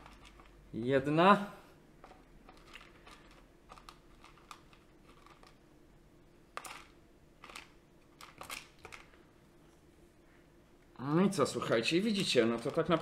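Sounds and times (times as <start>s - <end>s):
small parts clicking and tapping: 0.0s - 0.6s, 2.0s - 5.6s, 6.5s - 9.2s, 12.1s - 13.0s.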